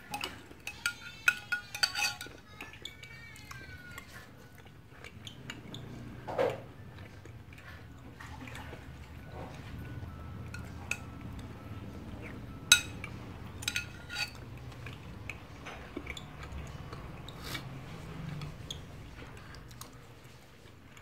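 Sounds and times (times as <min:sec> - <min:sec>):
metal spoon clinking on glass bowl: 0:00.0 - 0:02.5, 0:10.5 - 0:11.5, 0:12.7 - 0:14.4
low steady hum: 0:04.5 - 0:21.0.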